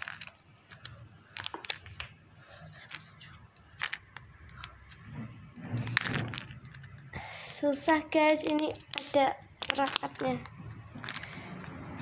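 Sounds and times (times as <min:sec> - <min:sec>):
plastic egg clicking and crackling: 0:00.0 - 0:05.0, 0:07.7 - 0:11.8.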